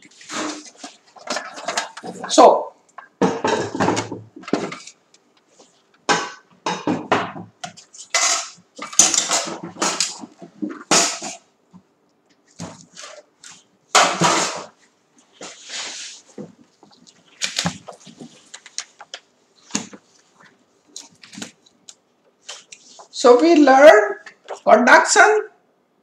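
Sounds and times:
objects clattering on tray: 0.1 - 2.4, 3.0 - 5.0, 6.1 - 11.5, 13.9 - 14.8.

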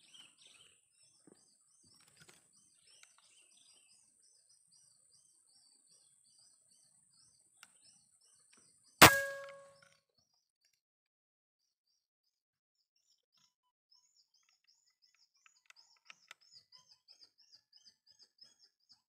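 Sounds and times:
air rifle shot: 9.0 - 9.7
metallic ring: 9.0 - 9.7.

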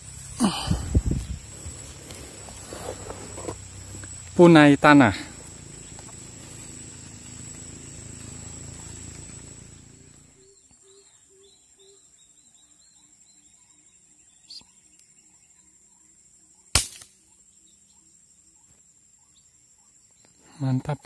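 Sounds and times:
faint rhythmic chirping: 0.0 - 21.0
air rifle firing: 16.8 - 17.1.

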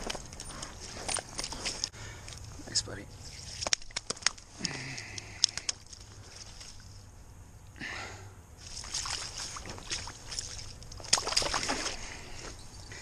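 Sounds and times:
slushy water sloshing and splashing: 8.6 - 12.4.

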